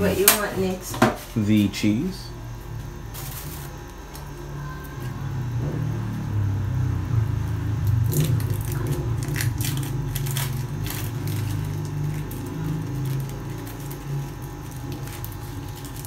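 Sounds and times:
low hum: 2.1s - 16.0s
plastic wrapper crinkling: 3.1s - 4.4s, 7.8s - 16.0s.

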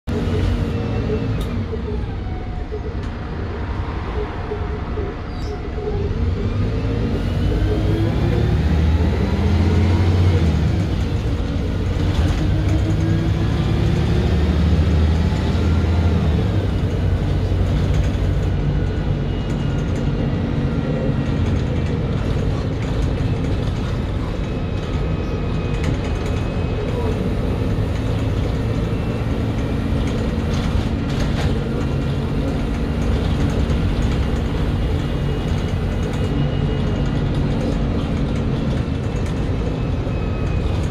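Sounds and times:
diesel bus engine: 0.0s - 40.9s
bus body rattling: 9.6s - 40.9s.

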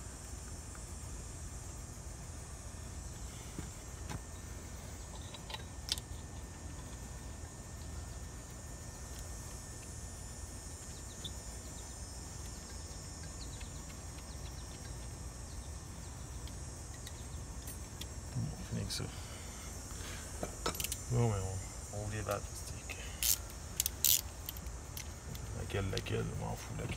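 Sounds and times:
high hiss: 14.2s - 26.9s.

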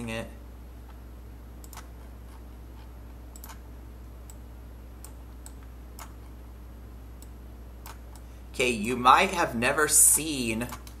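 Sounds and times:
low electrical hum: 0.0s - 11.0s
keyboard and mouse clicks: 1.6s - 2.0s, 3.3s - 3.6s, 5.0s - 6.3s, 7.2s - 8.3s, 10.7s - 11.0s.

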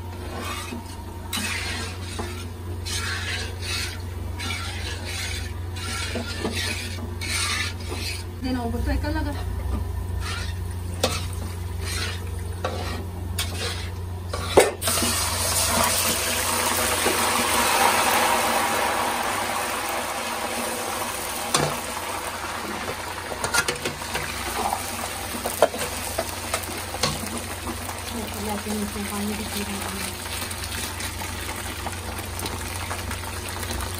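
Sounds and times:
food sizzling in a pan: 0.0s - 8.6s, 10.1s - 33.9s
spoon scraping a metal pan: 0.2s - 8.3s, 10.2s - 15.1s.

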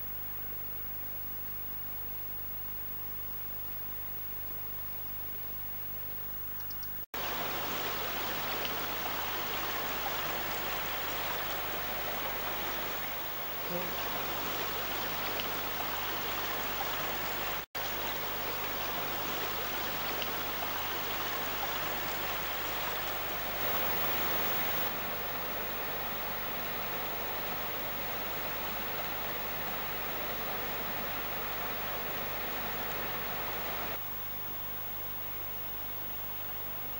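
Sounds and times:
river water rushing: 7.2s - 25.1s.

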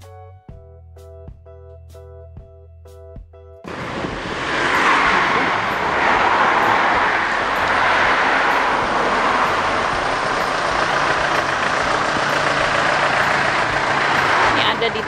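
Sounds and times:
road traffic passing: 3.7s - 15.0s.

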